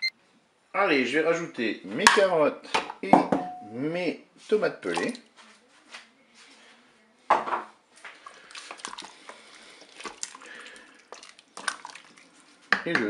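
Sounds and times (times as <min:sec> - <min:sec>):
wet sloshing: 0:08.1 - 0:12.7.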